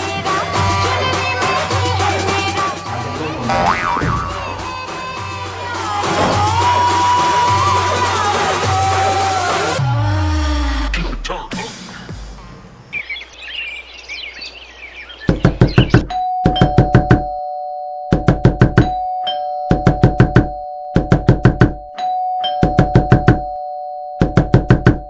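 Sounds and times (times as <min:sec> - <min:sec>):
birds chirping: 0:12.8 - 0:16.8
rapid knocking on a door: 0:15.3 - 0:17.3, 0:18.1 - 0:18.9, 0:19.7 - 0:21.8, 0:22.6 - 0:23.5, 0:24.2 - 0:25.0.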